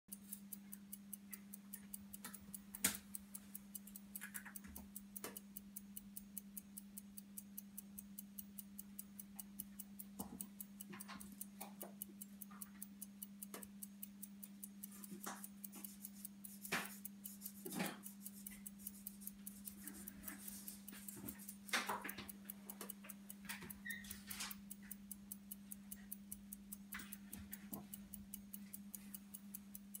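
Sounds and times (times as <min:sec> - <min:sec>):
pocket watch ticking: 0:00.1 - 0:30.0.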